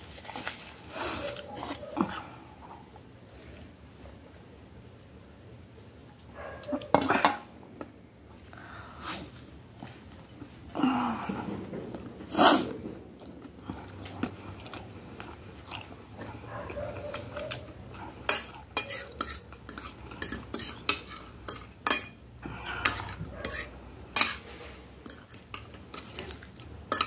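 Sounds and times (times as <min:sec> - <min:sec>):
cutlery clinking on glass bowl: 0:18.2 - 0:22.2, 0:22.8 - 0:26.3.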